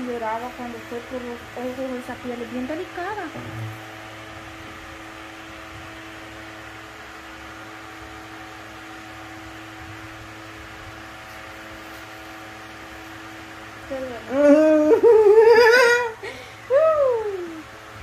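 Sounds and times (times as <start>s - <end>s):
small motor running: 0.0s - 4.0s.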